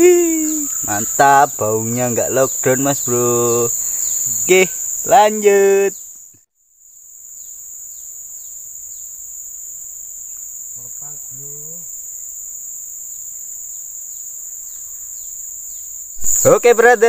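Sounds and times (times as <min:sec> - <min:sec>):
faint voice: 0:00.0 - 0:00.8
insects droning: 0:00.0 - 0:17.0.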